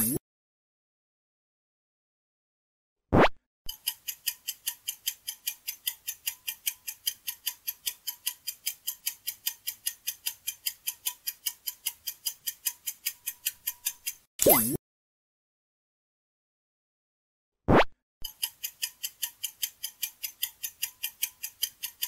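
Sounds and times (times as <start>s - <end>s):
rapid clock ticks: 3.7s - 14.3s, 18.2s - 22.0s.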